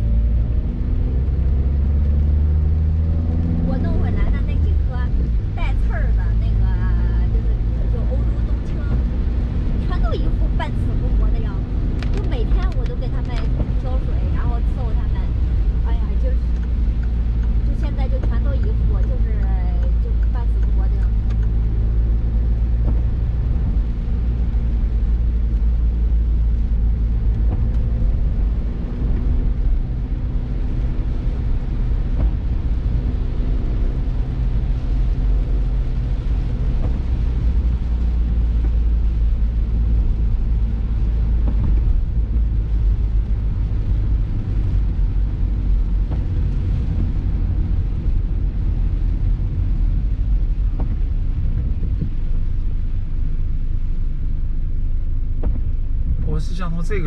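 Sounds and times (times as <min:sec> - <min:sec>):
engine and road rumble: 0:00.0 - 0:57.0.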